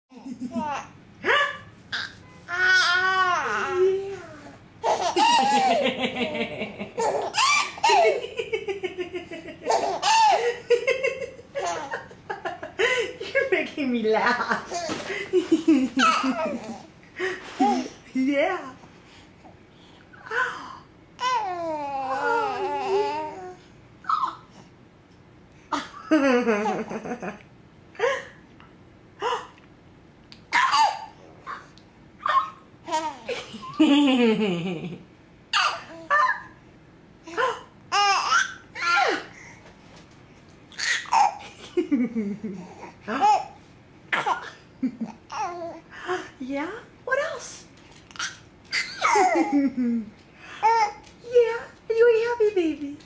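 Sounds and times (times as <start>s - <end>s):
baby laughing: 0.1s - 1.0s, 4.8s - 13.0s, 15.8s - 16.9s, 30.5s - 33.9s, 35.6s - 36.6s, 37.3s - 39.3s, 40.7s - 41.9s, 48.1s - 49.8s.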